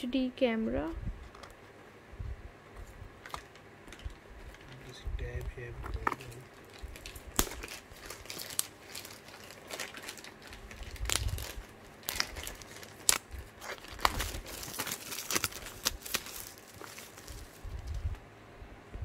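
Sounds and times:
plastic wrapping crinkling: 5.8 - 18.2.

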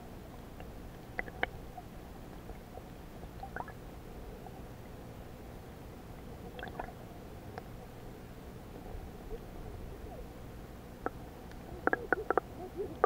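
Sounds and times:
underwater low rumble: 0.0 - 13.0.

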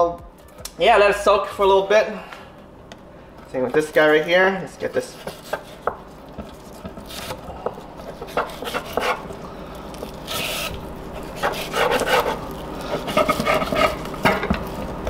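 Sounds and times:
knife scraping on cutting board: 4.8 - 9.4, 10.0 - 14.9.

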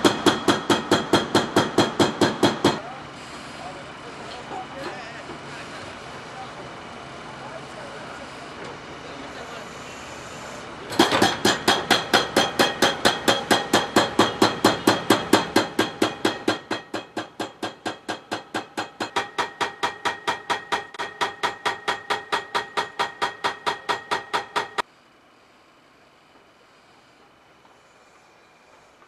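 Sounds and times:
hydraulic breaker hammering: 0.0 - 2.9, 10.9 - 24.8.

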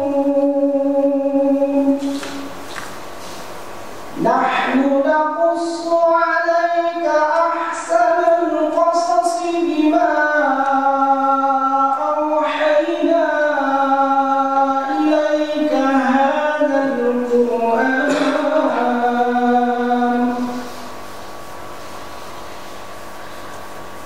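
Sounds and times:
man reciting melodically: 0.0 - 2.4, 4.1 - 20.7.

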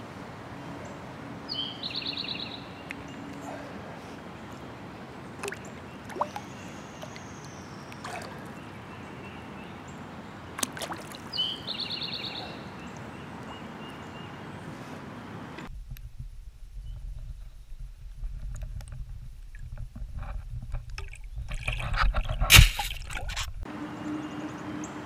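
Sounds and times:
fish splashing in water: 5.4 - 7.3, 7.9 - 8.6, 10.6 - 11.4.

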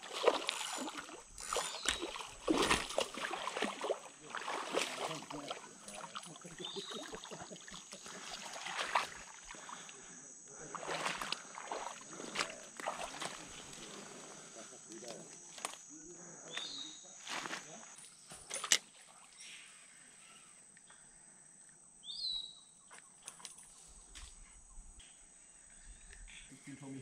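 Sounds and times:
fish splashing in shallow water: 0.0 - 15.8.

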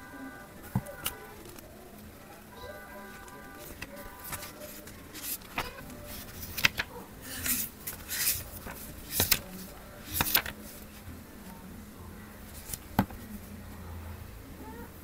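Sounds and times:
book pages flipping: 3.1 - 11.1, 12.5 - 13.4.

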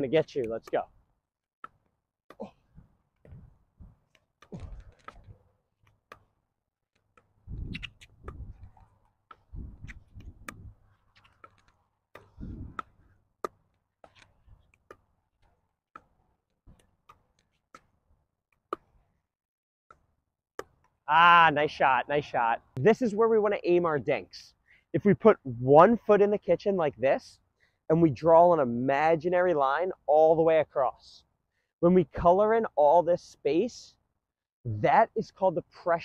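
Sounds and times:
dull low thumps: 7.4 - 8.8, 9.5 - 10.8, 12.3 - 12.8
paddles striking plastic ball: 11.2 - 18.0.

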